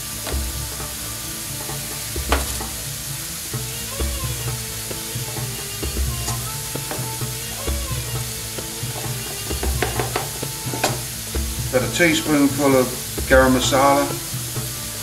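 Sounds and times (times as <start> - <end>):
sauce sizzling in frying pan: 0.0 - 15.0.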